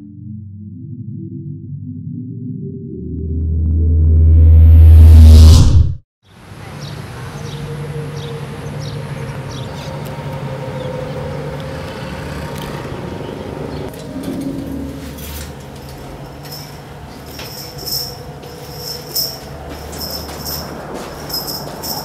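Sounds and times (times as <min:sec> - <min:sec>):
low hum: 0:00.0 - 0:06.0
traffic drone: 0:03.0 - 0:22.0.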